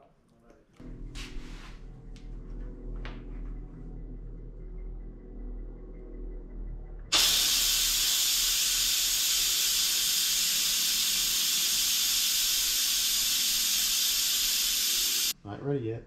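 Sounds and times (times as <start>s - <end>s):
pressure cooker venting steam: 7.1s - 15.4s.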